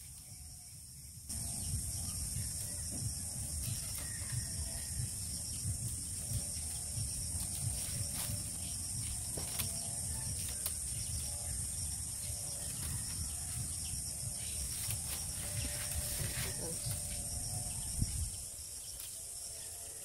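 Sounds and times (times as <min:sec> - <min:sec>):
insect chorus: 0:00.0 - 0:20.0
bamboo strips clicking and rustling: 0:02.5 - 0:17.3, 0:18.5 - 0:19.4.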